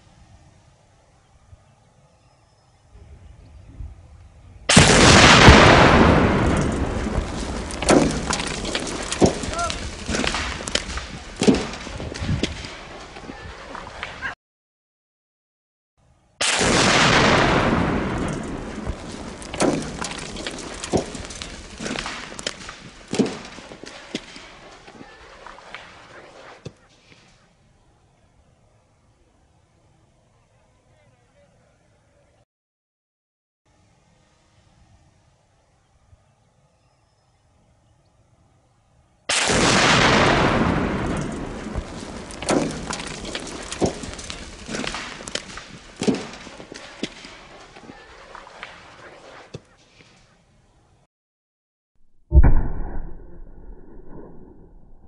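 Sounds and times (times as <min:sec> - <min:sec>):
car explosion: 0:04.7 - 0:12.7, 0:16.4 - 0:24.6, 0:39.3 - 0:47.4, 0:52.2 - 0:54.3
sharp cracks and thuds: 0:04.7 - 0:14.2, 0:16.4 - 0:26.8, 0:39.3 - 0:48.9, 0:52.0 - 0:55.0.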